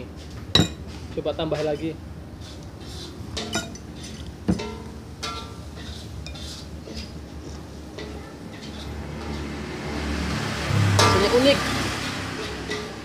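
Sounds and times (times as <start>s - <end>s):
metal spoon clinking on glass: 3.4s - 5.6s.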